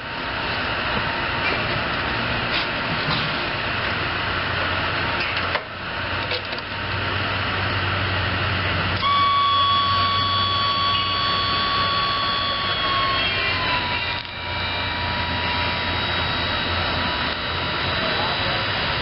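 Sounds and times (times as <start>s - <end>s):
steady high whine: 0.0s - 19.0s
mower engine running: 10.0s - 19.0s.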